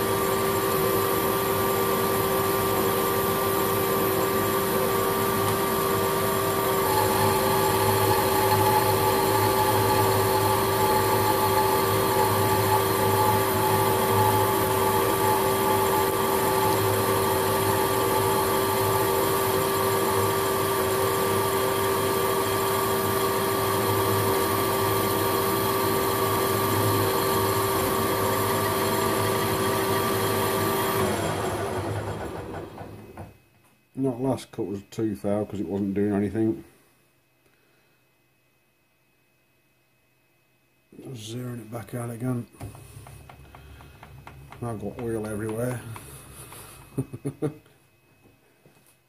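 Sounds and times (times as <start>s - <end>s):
metal lathe whining: 0.0s - 32.8s.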